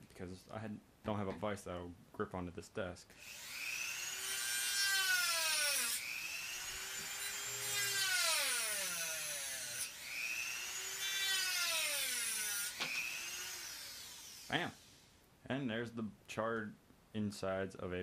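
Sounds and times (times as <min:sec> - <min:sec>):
rotary tool cutting wood: 0:03.2 - 0:14.9.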